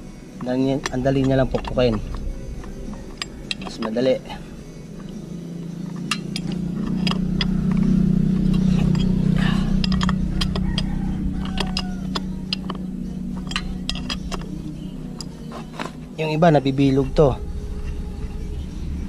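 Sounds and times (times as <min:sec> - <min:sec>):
passing vehicle engine hum: 0:00.0 - 0:19.0
wrench clicking on axle nut: 0:05.9 - 0:16.0.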